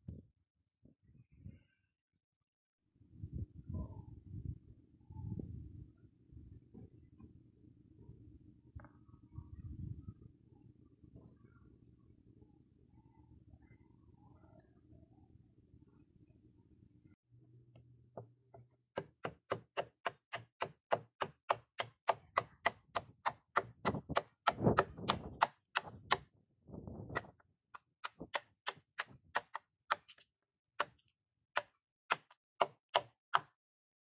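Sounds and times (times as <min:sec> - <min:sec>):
axe chopping into wood: 0:19.0 - 0:26.2, 0:31.6 - 0:33.5.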